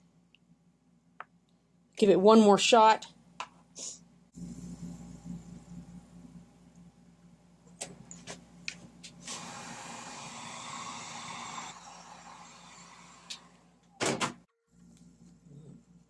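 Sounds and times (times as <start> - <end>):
low steady hum: 0.0 - 9.2, 13.0 - 16.0.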